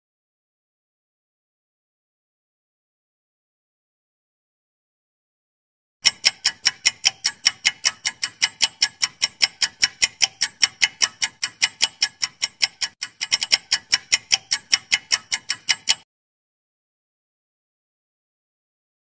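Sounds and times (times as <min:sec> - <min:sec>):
fast clock ticking: 0:06.0 - 0:16.1.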